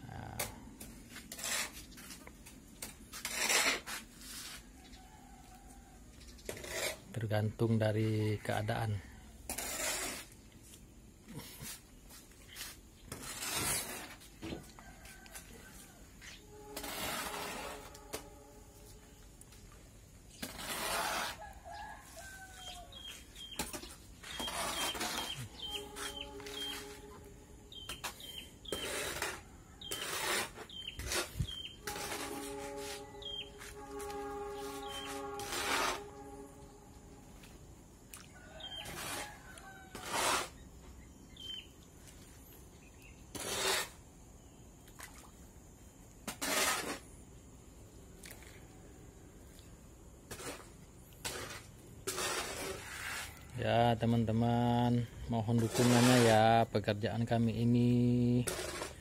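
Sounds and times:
hoe scraping sand and cement: 0.2 - 4.8, 6.5 - 19.3, 20.2 - 36.8, 38.3 - 41.7, 42.4 - 44.1, 46.2 - 47.4, 50.2 - 59.0
low bird calls: 21.4 - 35.4, 41.2 - 41.8
birds chirping: 21.7 - 35.4, 40.9 - 43.3.

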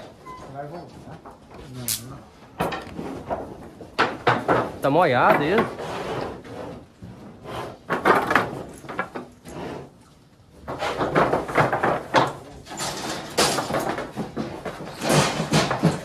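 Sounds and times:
cattle chute rattling knocks: 10.9 - 16.0.

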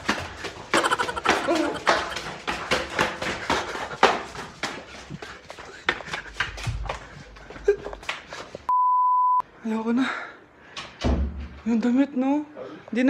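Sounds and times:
hurried footsteps: 0.0 - 8.7.

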